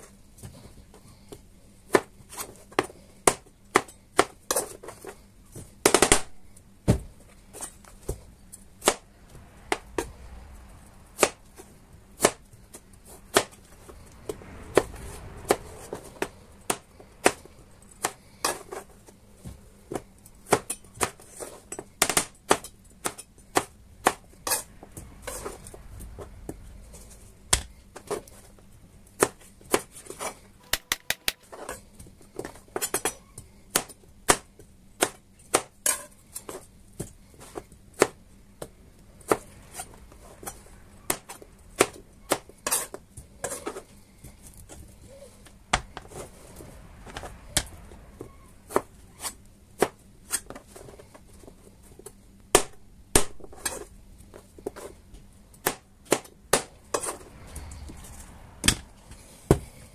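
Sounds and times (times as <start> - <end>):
knife chopping on cutting board: 30.6 - 31.4.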